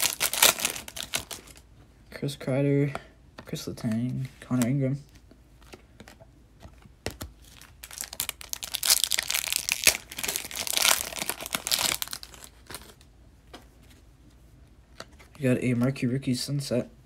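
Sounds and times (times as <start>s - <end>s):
foil wrapper crackling: 0.0s - 1.6s, 7.5s - 13.0s.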